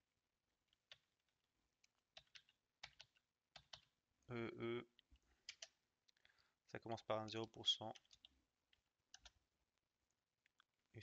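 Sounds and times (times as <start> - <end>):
computer keyboard typing: 2.1 - 3.9, 5.4 - 5.8, 9.1 - 9.4.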